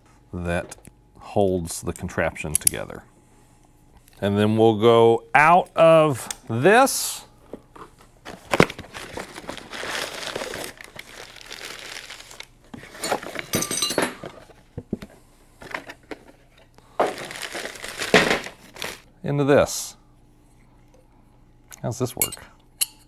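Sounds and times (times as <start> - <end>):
rustling and crinkling: 7.5 - 13.6, 14.2 - 19.1.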